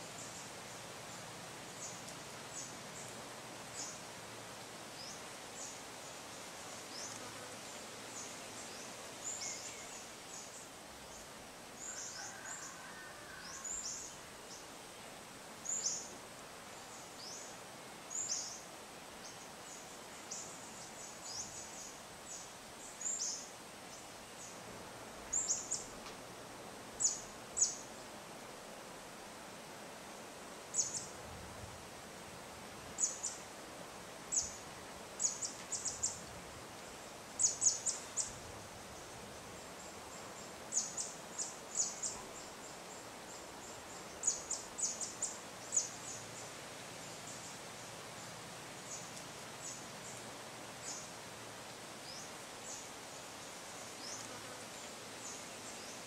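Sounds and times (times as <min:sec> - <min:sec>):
light wind: 0:00.0 - 0:56.0
insects hissing: 0:34.3 - 0:56.0.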